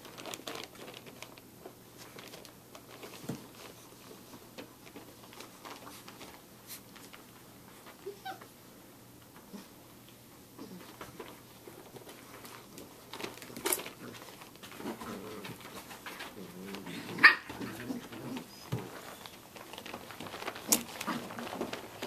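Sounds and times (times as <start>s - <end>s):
puppy high cry: 8.0s - 8.5s, 17.2s - 17.6s
puppies growling: 13.4s - 22.0s.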